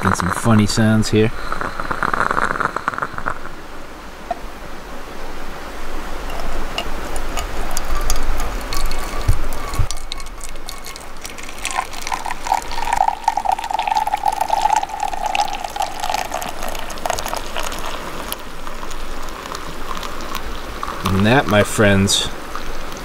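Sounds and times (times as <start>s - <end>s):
coffee pouring into metal cup: 0.0s - 0.8s, 6.3s - 21.7s
ringing note from filling cup: 6.3s - 17.8s.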